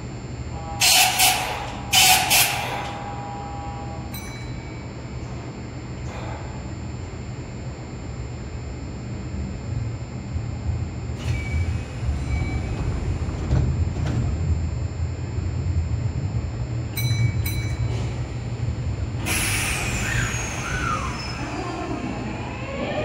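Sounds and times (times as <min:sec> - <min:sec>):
train low rumble: 0:00.0 - 0:23.0
train inverter tone climbing: 0:07.0 - 0:23.0
air brakes hissing: 0:19.2 - 0:21.8.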